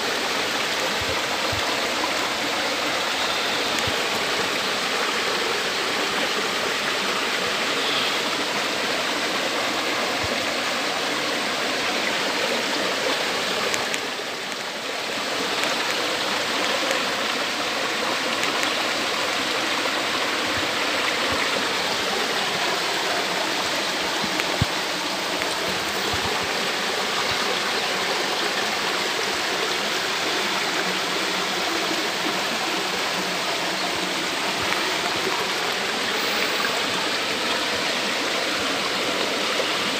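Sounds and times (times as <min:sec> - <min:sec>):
stream water rushing over rocks: 0:00.0 - 0:39.9.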